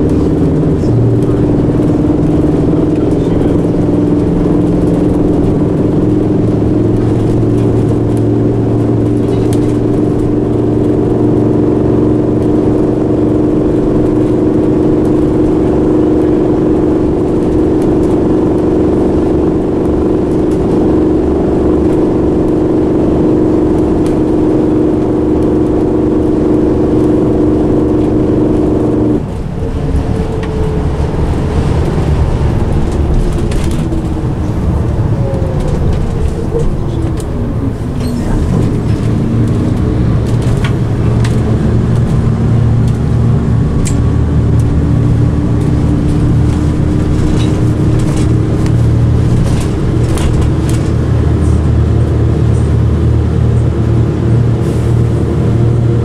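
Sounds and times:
bus diesel engine pulling: 0:00.0 - 0:56.0.

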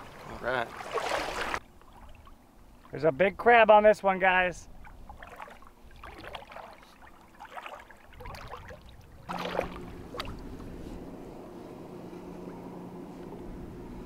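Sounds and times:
water splashing and sloshing: 0:00.0 - 0:03.6, 0:04.6 - 0:11.1.

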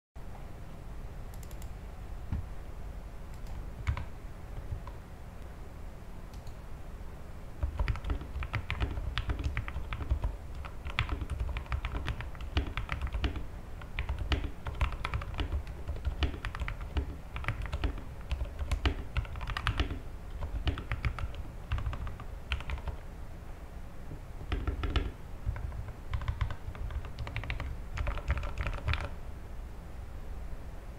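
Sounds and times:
muted keyboard typing: 0:01.3 - 0:01.7, 0:03.3 - 0:05.0, 0:07.6 - 0:23.0, 0:24.4 - 0:29.2.

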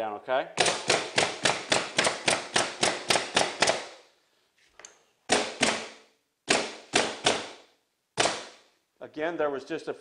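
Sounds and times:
pneumatic stapler shots: 0:00.6 - 0:04.0, 0:05.3 - 0:07.6, 0:08.2 - 0:08.6.

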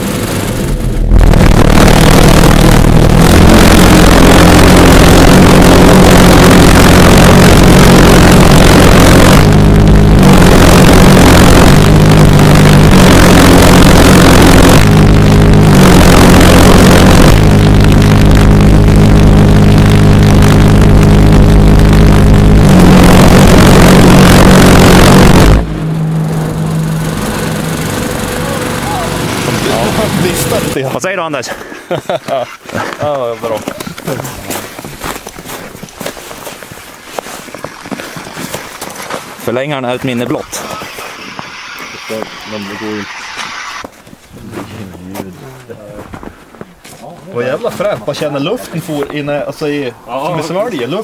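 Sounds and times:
pulse jet engine droning: 0:00.0 - 0:31.0, 0:39.4 - 0:43.9.

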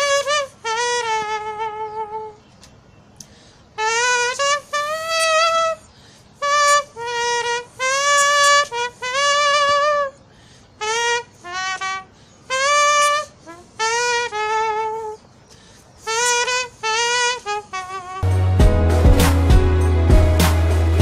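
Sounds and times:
person imitating a trumpet: 0:00.0 - 0:02.4, 0:03.8 - 0:10.2, 0:10.8 - 0:15.2, 0:16.0 - 0:18.3.

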